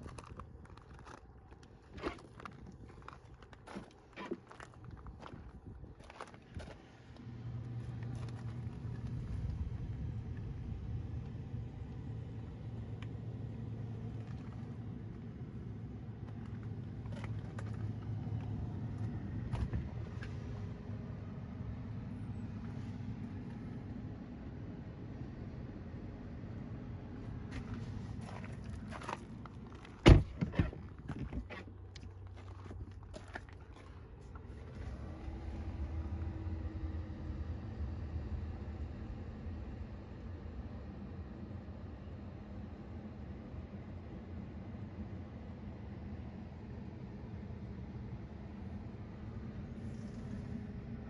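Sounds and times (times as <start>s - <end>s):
low outdoor rumble: 0.0s - 51.0s
low steady hum: 0.0s - 51.0s
loud thump: 30.0s - 30.7s.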